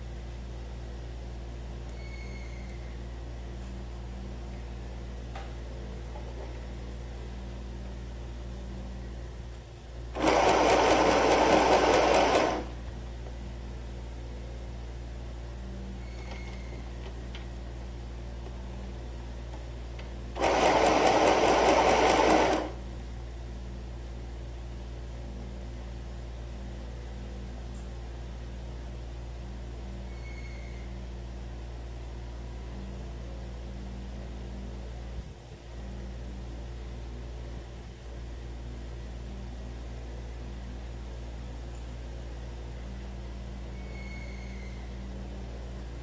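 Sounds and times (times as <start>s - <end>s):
steady low hum: 0.0s - 46.0s
sewing machine stitching: 10.2s - 12.7s, 20.4s - 22.8s.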